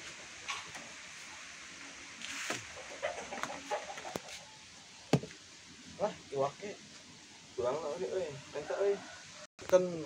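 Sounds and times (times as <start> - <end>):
chickens clucking: 2.5 - 5.1.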